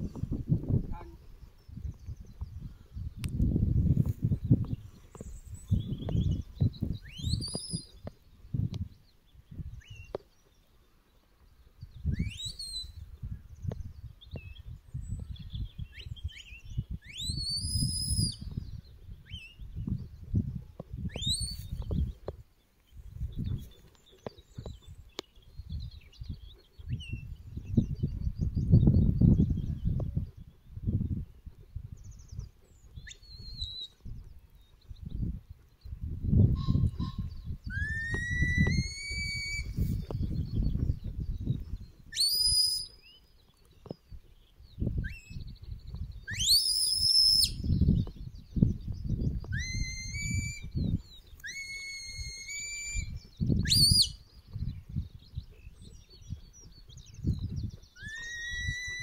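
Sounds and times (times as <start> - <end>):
wind buffeting microphone: 0.0 - 10.6, 11.4 - 43.2, 43.8 - 59.0
rising whistles: 37.7 - 40.0, 46.3 - 47.8, 49.5 - 50.8, 51.4 - 54.2, 58.0 - 59.0.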